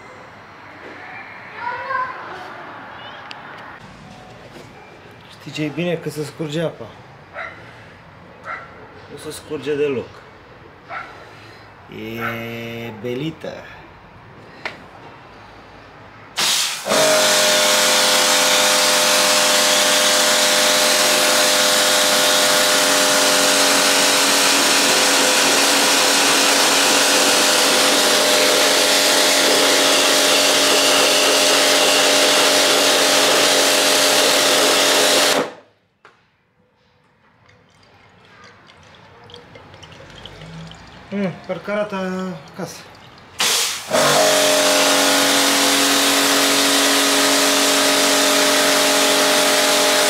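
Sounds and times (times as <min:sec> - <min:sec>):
water jet hissing on tiles: 0:16.4 - 0:34.5, 0:42.9 - 0:50.0
pressure washer motor running: 0:16.4 - 0:35.6, 0:43.4 - 0:50.0.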